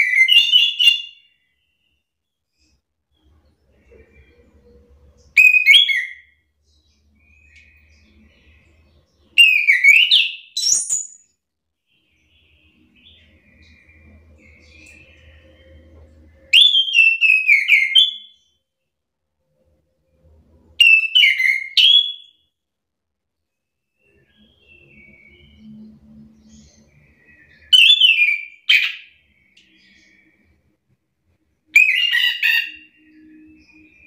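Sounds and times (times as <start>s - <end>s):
thrush singing whistled notes: 0.0s - 2.0s, 5.2s - 6.5s, 7.1s - 11.3s, 16.4s - 18.5s, 20.8s - 22.4s, 24.0s - 30.6s.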